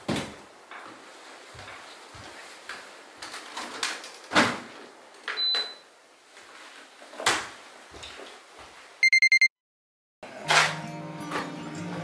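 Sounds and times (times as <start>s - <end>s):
short high electronic beep: 9.0s - 9.5s.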